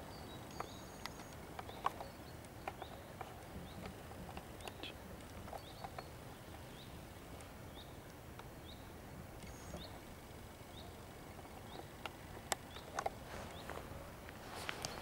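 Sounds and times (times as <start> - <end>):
small bird chirping: 0.0 - 4.0, 4.6 - 7.0.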